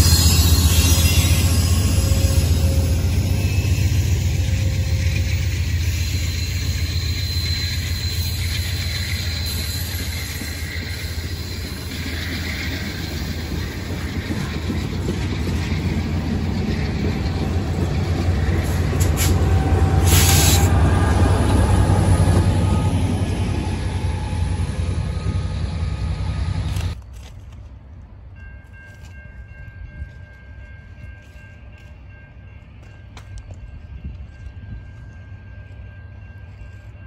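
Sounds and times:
diesel locomotive passing: 0:00.0 - 0:27.0
train wheels rumbling on rail: 0:00.0 - 0:37.0.

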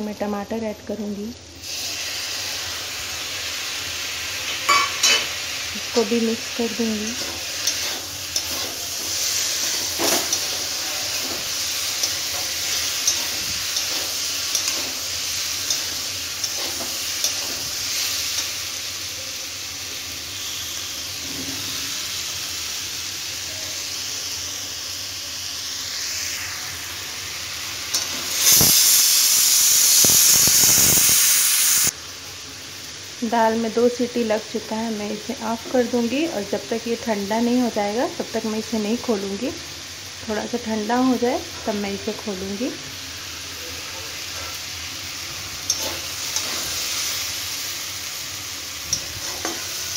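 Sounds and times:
vegetables sizzling in a pan: 0:00.0 - 0:49.9
pressure cooker whistle: 0:20.1 - 0:21.2, 0:28.4 - 0:31.9.

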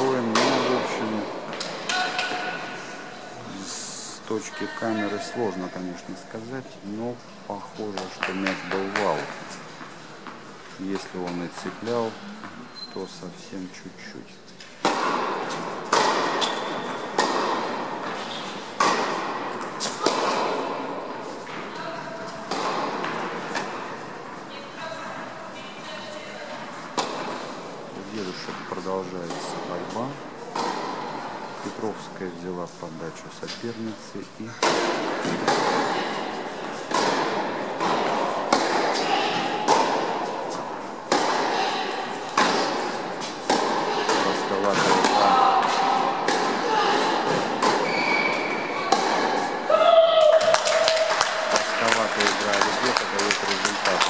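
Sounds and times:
tennis ball hits echoing: 0:00.0 - 0:02.8, 0:14.8 - 0:21.1, 0:22.5 - 0:23.8, 0:34.6 - 0:49.7.

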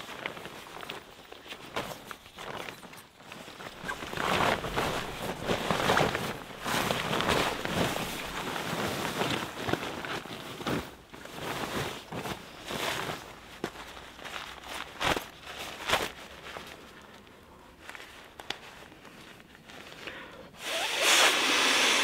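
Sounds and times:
fabric rustling and swishing: 0:00.0 - 0:20.0.

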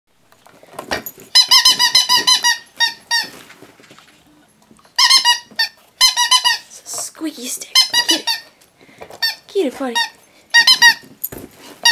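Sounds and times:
squeaky dog toy squeaking: 0:01.3 - 0:03.4, 0:04.9 - 0:06.8, 0:07.7 - 0:08.5, 0:09.2 - 0:11.9.

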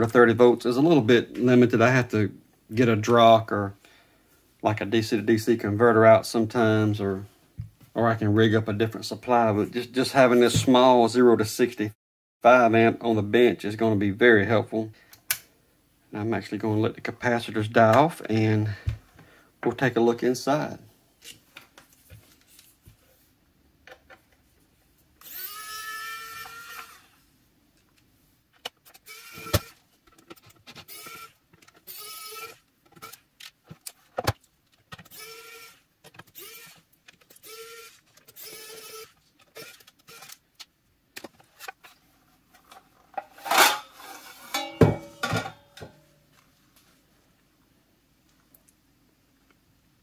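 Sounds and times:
electric screwdriver whirring: 0:25.2 - 0:27.0, 0:29.1 - 0:29.8, 0:30.9 - 0:33.2, 0:35.1 - 0:35.8, 0:36.4 - 0:36.8, 0:37.4 - 0:40.4
metal case cover clattering: 0:43.2 - 0:46.0.

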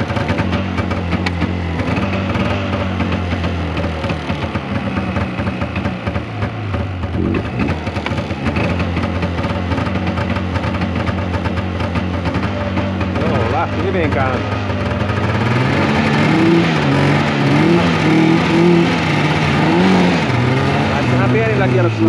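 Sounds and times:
snowmobile engine idling: 0:00.0 - 0:22.0.

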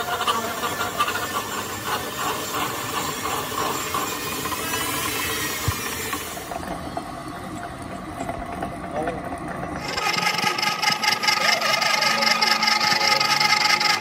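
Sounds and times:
tool rasping on steel: 0:00.0 - 0:06.2, 0:09.8 - 0:14.0.

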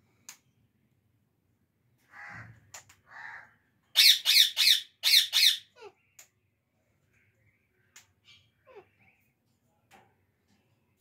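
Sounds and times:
parakeets squawking: 0:04.0 - 0:06.0.

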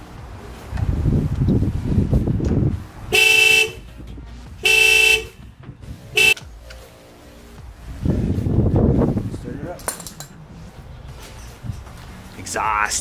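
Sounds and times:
low rumbling: 0:00.0 - 0:12.4
car horn honking: 0:03.1 - 0:03.9, 0:04.6 - 0:05.5, 0:06.1 - 0:06.4.

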